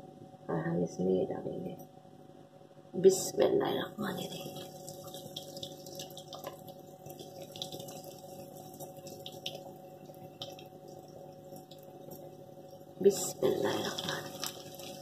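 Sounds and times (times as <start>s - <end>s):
oil bubbling and sizzling: 4.2s - 15.0s
small crackles: 4.4s - 13.0s, 13.6s - 15.0s.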